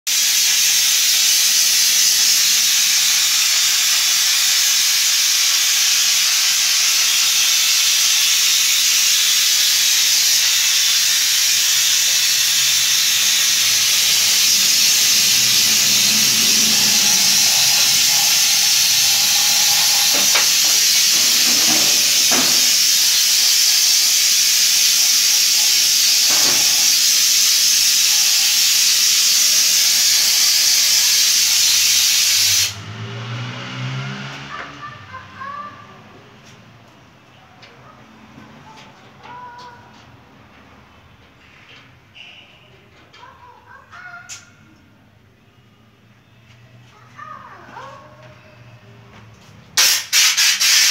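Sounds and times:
spray gun hissing: 0.1s - 32.8s, 49.8s - 50.9s.

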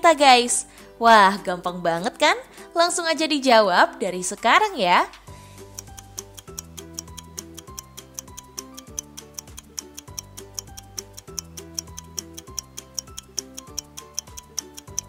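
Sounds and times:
light countdown timer music: 3.4s - 15.0s
fast clock ticking: 5.6s - 15.0s.

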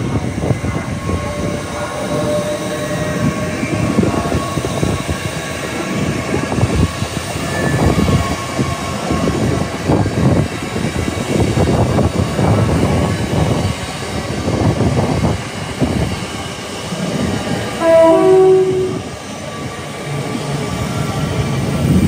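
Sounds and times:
train rumble and wheel noise: 0.0s - 22.0s
two-note train horn: 17.8s - 19.1s.

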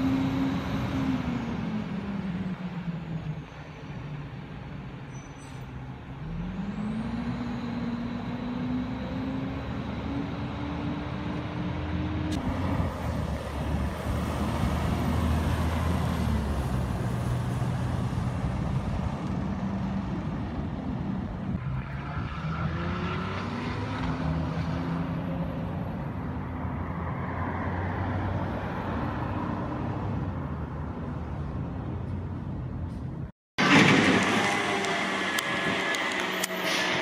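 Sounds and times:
truck diesel engine accelerating: 0.0s - 5.0s, 6.0s - 26.0s, 33.6s - 37.0s.

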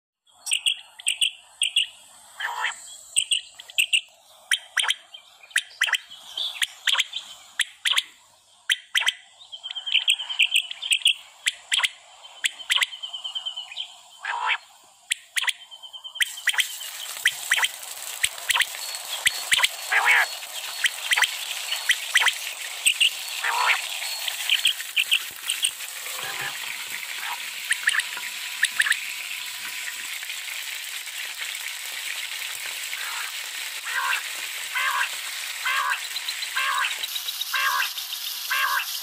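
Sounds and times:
quail chirping: 0.5s - 8.1s, 8.7s - 13.0s, 14.2s - 15.6s, 16.2s - 25.7s, 35.7s - 39.0s
oil sizzling in pan: 14.7s - 39.0s.

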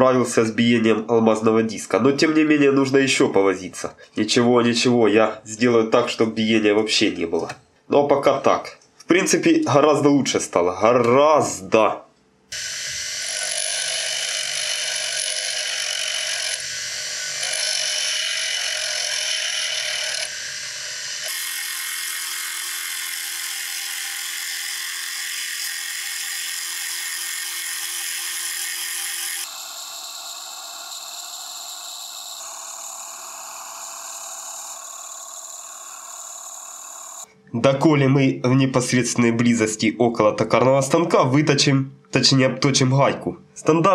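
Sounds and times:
lathe cutting hiss: 12.5s - 37.3s
lathe machine whine: 12.6s - 37.2s.

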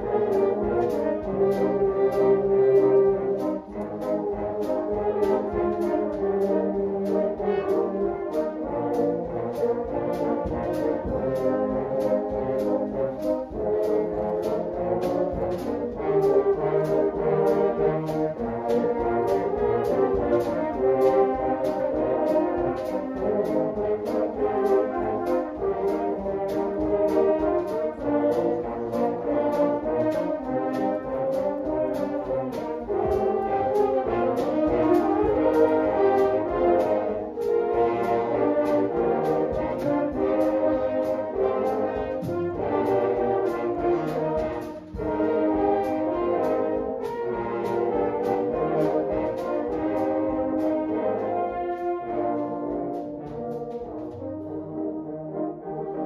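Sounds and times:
steady clicking beat: 0.0s - 54.7s
french horns playing pop arrangement: 0.0s - 56.0s.

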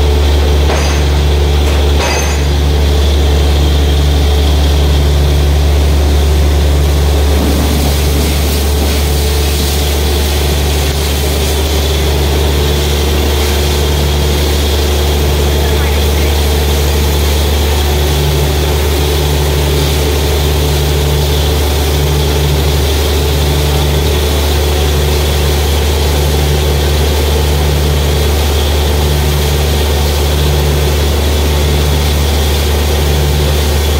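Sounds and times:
drilling rig engine running: 0.0s - 33.9s
water and mist hissing: 0.1s - 33.9s.

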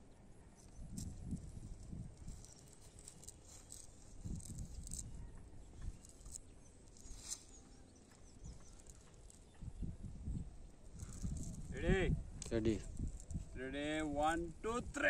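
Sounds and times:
cast net rustling: 0.9s - 9.8s, 10.8s - 11.7s.

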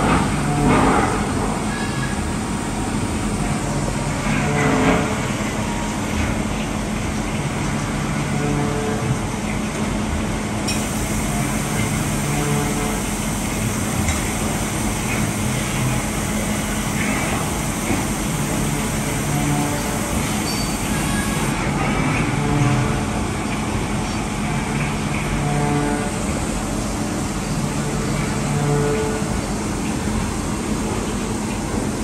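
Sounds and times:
lathe machine hum: 10.5s - 21.6s
coolant spray hiss: 10.7s - 21.5s
short low whines: 10.7s - 21.5s.

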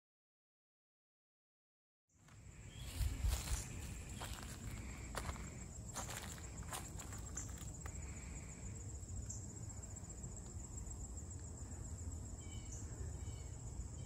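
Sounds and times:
high-pitched insect trill: 2.3s - 14.0s
footsteps on leaf litter: 2.8s - 7.8s.

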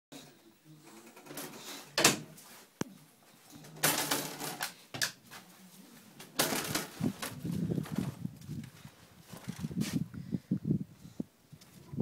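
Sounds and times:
soft shuffling: 1.6s - 3.8s, 5.2s - 10.3s
plastic pet door flap clattering: 6.4s - 7.4s.

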